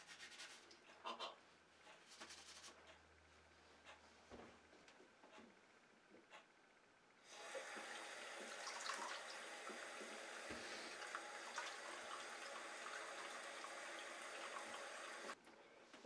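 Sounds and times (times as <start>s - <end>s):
faucet turned on: 7.3s - 15.4s
water running into basin: 7.3s - 15.4s.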